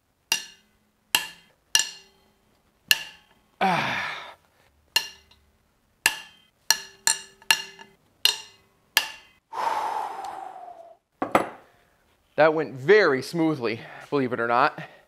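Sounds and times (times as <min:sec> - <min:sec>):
long breathy groan: 0:03.6 - 0:04.4, 0:09.5 - 0:11.0.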